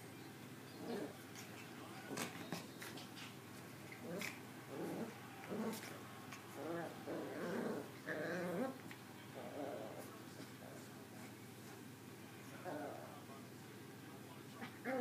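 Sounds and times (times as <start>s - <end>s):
puppies growling in play: 0.8s - 11.4s, 12.5s - 13.2s, 14.5s - 15.0s.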